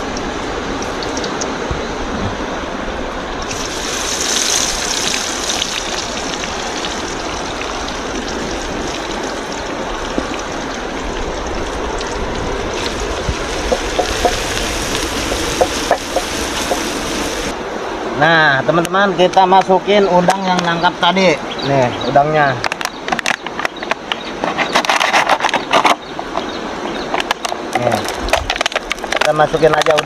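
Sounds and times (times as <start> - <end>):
river flowing over rocks: 0.0 - 17.8.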